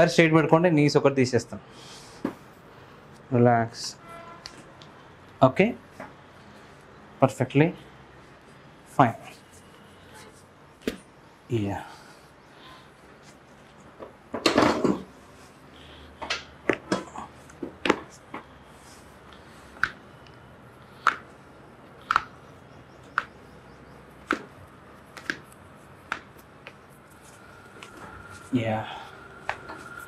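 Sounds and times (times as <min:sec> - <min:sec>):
toe joints popping: 0:24.2 - 0:26.8.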